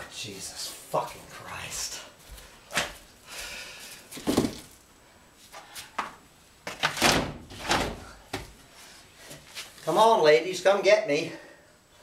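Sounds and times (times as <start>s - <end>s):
items knocking and scraping: 4.1s - 4.8s.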